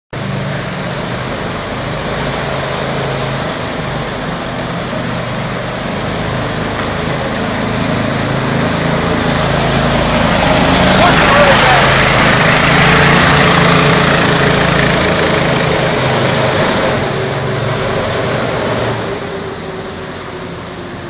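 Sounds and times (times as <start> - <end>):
small kart engine running: 0.2 - 21.0.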